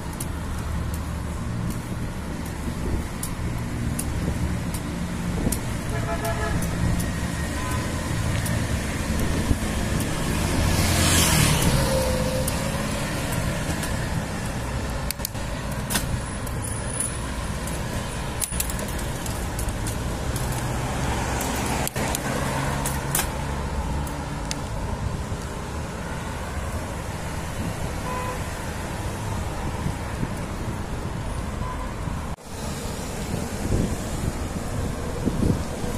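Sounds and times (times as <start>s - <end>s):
vehicle engines running: 0.0s - 28.0s
vehicle passing close: 7.2s - 14.9s.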